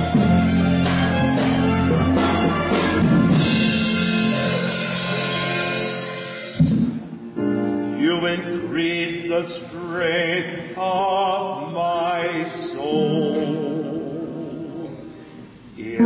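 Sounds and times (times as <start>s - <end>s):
man singing with vibrato: 7.9s - 16.0s.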